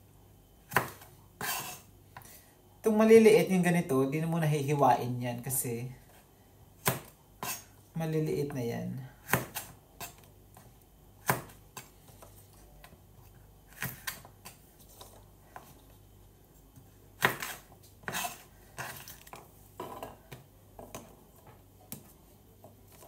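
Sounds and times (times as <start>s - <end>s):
knife chopping on cutting board: 0.7s - 1.8s, 6.8s - 7.6s, 9.2s - 10.3s, 11.2s - 11.9s, 13.7s - 14.6s, 17.2s - 19.1s.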